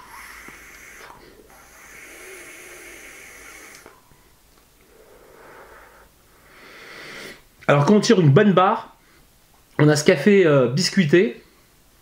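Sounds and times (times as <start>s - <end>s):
person exhaling vapour: 0.0s - 7.4s.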